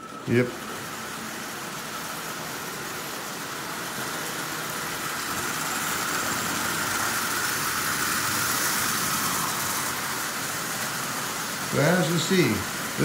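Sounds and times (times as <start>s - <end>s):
toy train motor whirring: 0.0s - 13.0s
wheels running on rails: 0.0s - 13.0s.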